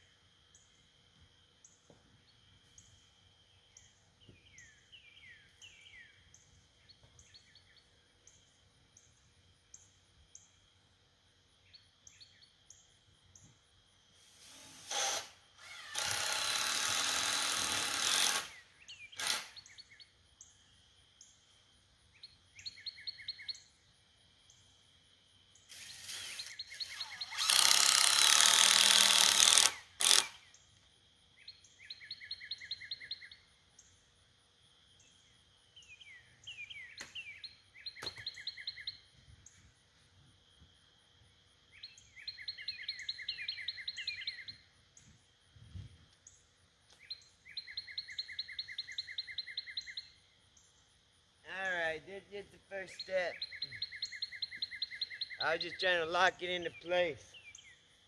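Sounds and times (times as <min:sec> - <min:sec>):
power tool running: 0:14.4 - 0:18.6, 0:19.2 - 0:19.5, 0:27.2 - 0:30.4
birds chirping: 0:35.0 - 0:39.6, 0:41.7 - 0:45.1, 0:51.5 - 0:57.9.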